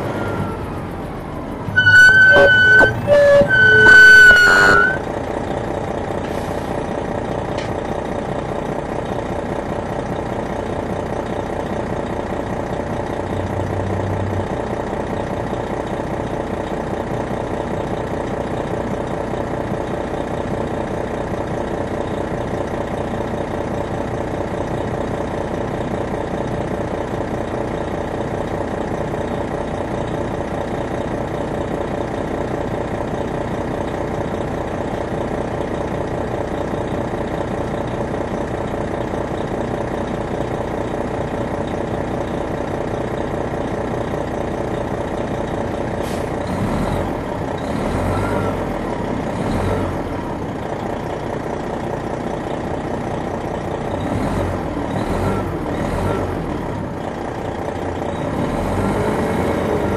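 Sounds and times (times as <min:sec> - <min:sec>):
diesel bus engine running: 0:00.0 - 0:59.9.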